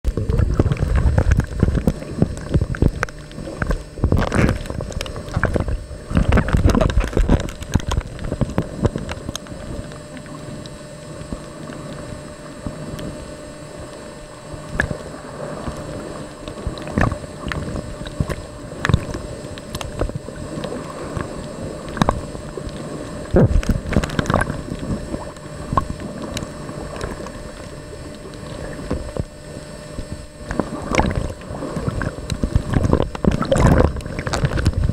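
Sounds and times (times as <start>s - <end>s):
turbulent water underwater: 0.0s - 34.9s
knocks underwater: 0.1s - 9.4s.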